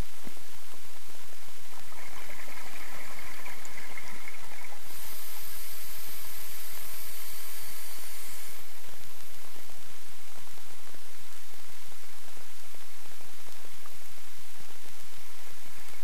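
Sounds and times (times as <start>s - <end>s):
underwater camera hiss: 4.3s - 9.6s
higher thin hiss: 4.8s - 9.8s.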